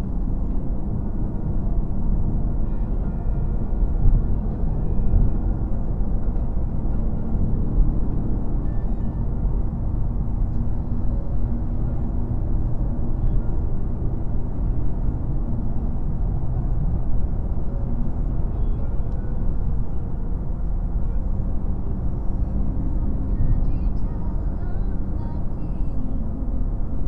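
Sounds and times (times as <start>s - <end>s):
car road and engine rumble: 0.0s - 27.0s.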